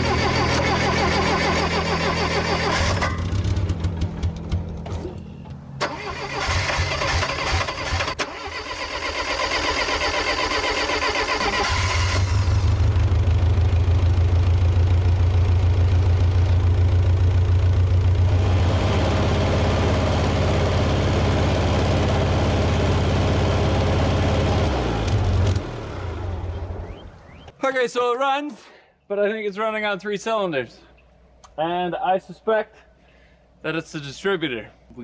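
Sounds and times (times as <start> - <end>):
starter cranking engine: 0.0 - 13.5
misfiring engine running: 0.0 - 27.0.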